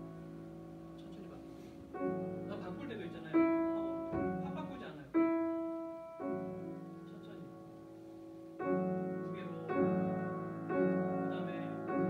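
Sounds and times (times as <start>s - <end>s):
piano chords: 0.0s - 12.0s.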